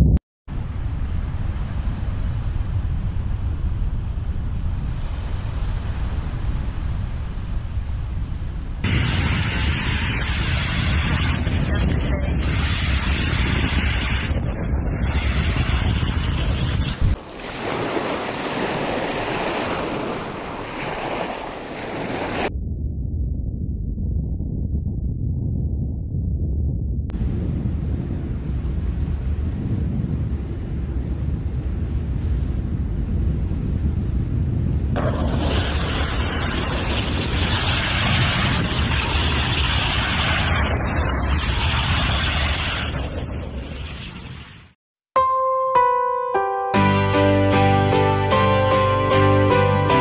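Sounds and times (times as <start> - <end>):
deep rumbling noise: 0.0 - 17.2, 22.4 - 44.8
wind buffeting microphone: 0.0 - 44.4
sea waves washing: 0.5 - 11.4, 15.1 - 22.5, 35.0 - 44.8.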